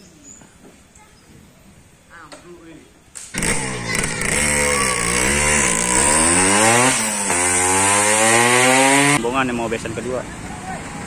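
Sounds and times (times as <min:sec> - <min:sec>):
small motorcycle engine revving: 0:03.3 - 0:09.2.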